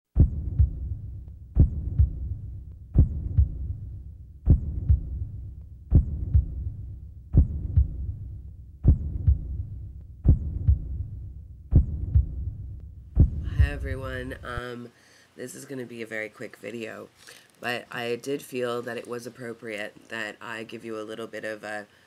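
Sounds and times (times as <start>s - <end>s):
heartbeat thumps: 0.1s - 14.6s
faint steady hum: 0.2s - 22.0s.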